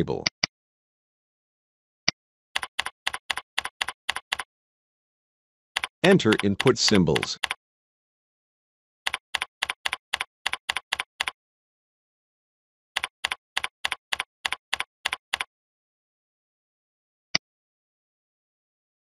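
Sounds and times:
typing on computer keyboard: 2.6s - 4.5s, 5.8s - 7.6s, 9.1s - 11.4s, 13.0s - 15.5s.

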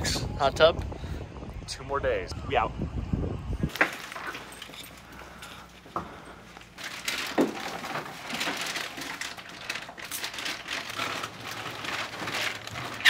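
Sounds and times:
plastic bag crinkling: 6.5s - 13.0s.

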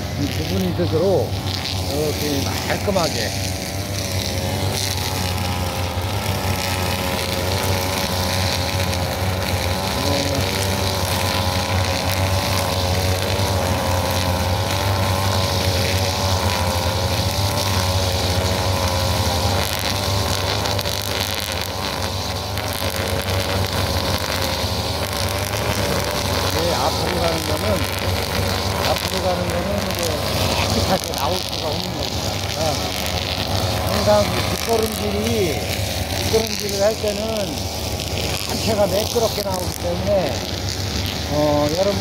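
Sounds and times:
brush cutter engines running: 0.0s - 42.0s
trimmer line cutting grass: 0.0s - 42.0s.

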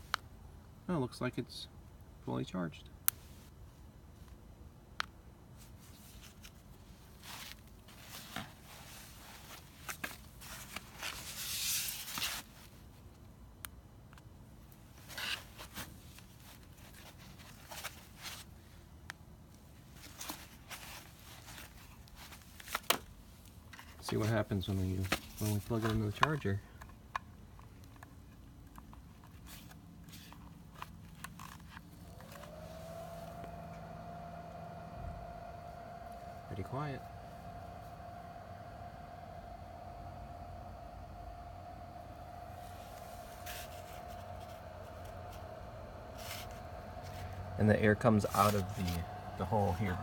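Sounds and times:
rustling and scraping handling noise: 5.6s - 13.0s, 14.9s - 18.8s, 19.8s - 39.8s, 41.6s - 50.0s
low steady hum: 23.2s - 50.0s
charger cooling fan whine: 29.5s - 50.0s.

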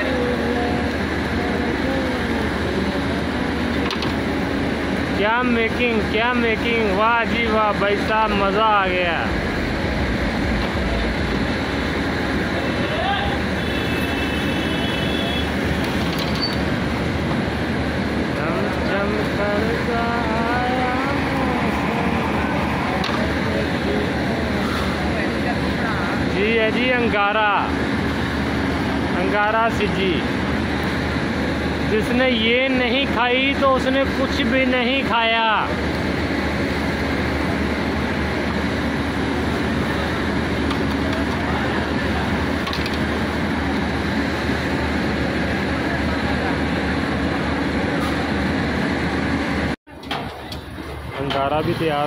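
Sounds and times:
person calling or singing: 0.0s - 2.9s, 19.0s - 23.4s
machine drone with hiss: 0.0s - 52.0s
rumbling street din: 0.0s - 52.0s.

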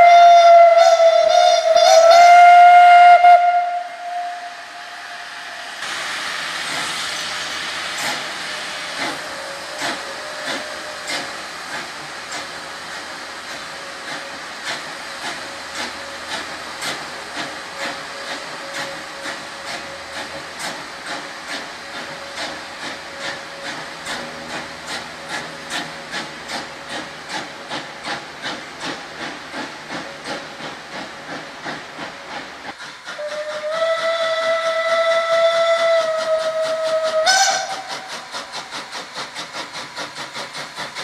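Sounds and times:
steam whistle: 0.0s - 6.0s, 9.0s - 11.4s, 33.1s - 38.5s
steam hiss: 0.0s - 41.0s
steam locomotive exhaust chuffs: 0.0s - 41.0s.

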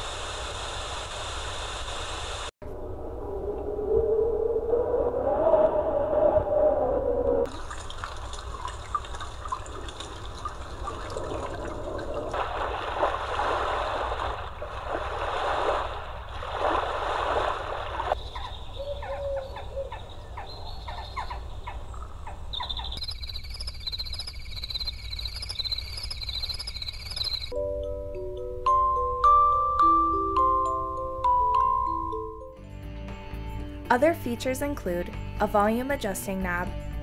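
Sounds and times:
watery hiss: 0.0s - 2.5s
ocean waves surging: 9.4s - 18.2s
insects chirping: 18.1s - 27.6s.

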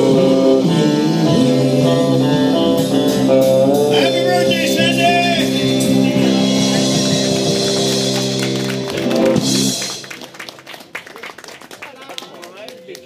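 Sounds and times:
rock band sustained chord: 0.0s - 10.6s
people clapping: 6.6s - 13.0s.

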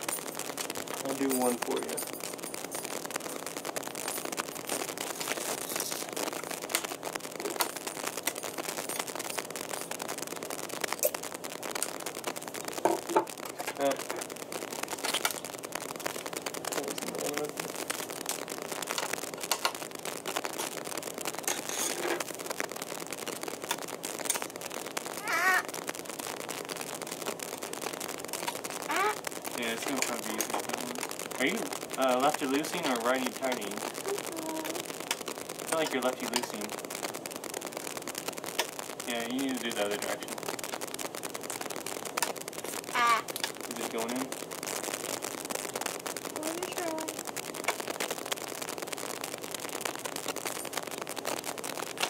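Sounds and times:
plastic packaging crinkling: 0.0s - 52.0s.

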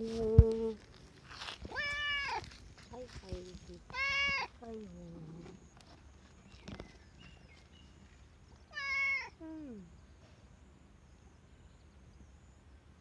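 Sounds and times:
cat meowing: 1.7s - 2.5s, 8.7s - 9.4s.

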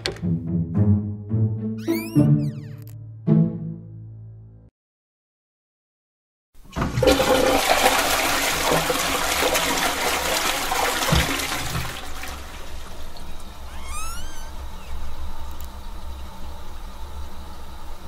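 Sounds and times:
toilet flushing: 6.6s - 13.8s, 14.5s - 18.0s.

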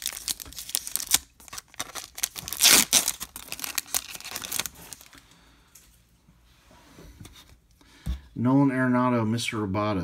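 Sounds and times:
foil wrapper ripping: 0.0s - 5.1s
foil wrapper crinkling: 0.0s - 5.2s.

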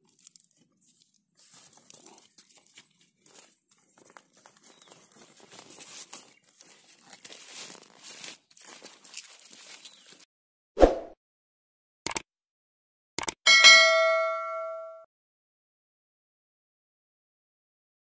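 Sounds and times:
leaves rustling and crinkling: 0.0s - 10.3s.

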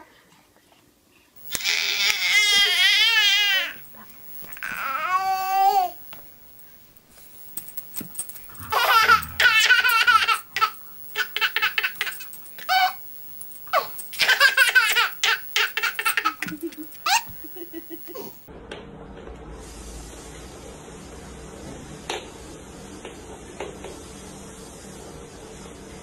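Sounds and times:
baby giggling: 8.6s - 13.0s, 13.7s - 18.4s.

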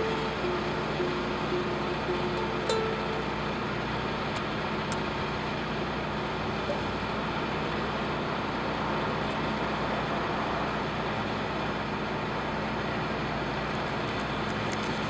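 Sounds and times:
low even hum: 0.0s - 7.1s
distant road traffic: 0.0s - 15.0s.

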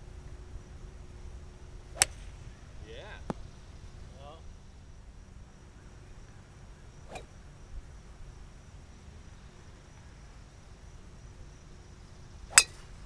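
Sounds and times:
faint high drone: 0.0s - 13.0s
golf club striking ball: 1.9s - 2.6s, 7.1s - 7.4s, 12.4s - 13.0s.

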